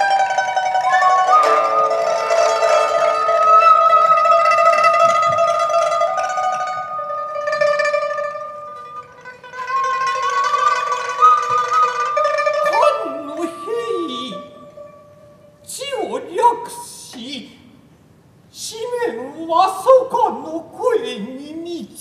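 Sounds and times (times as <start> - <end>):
biwa lute plucked: 0.0 - 15.7
long held wavering high notes: 0.0 - 15.8.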